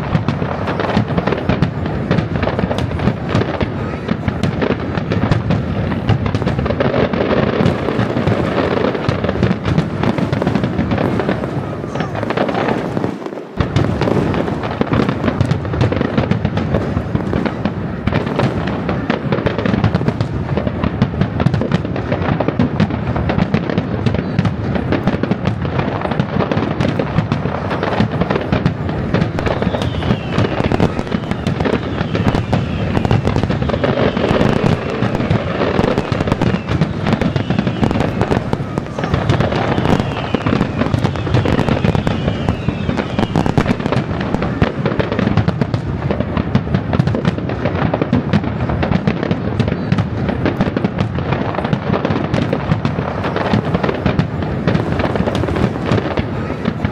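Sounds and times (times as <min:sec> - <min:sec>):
fireworks bangs and crackling: 0:00.0 - 0:56.9
falling firework whistles: 0:21.4 - 0:48.1.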